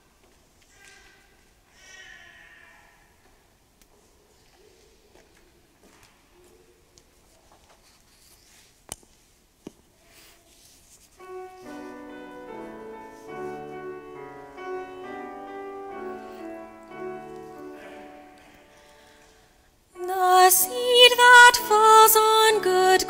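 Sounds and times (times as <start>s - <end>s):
piano playing slow chords: 11.2s - 19.2s.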